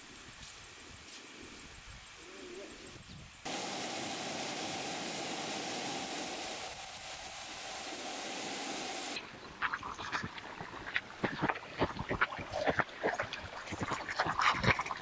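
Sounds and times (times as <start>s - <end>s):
stream water flowing over rocks: 3.5s - 15.0s.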